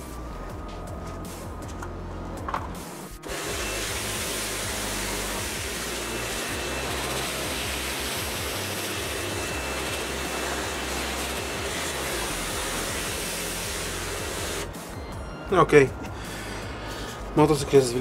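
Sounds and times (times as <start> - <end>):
pressure washer spray hissing: 3.2 - 14.9.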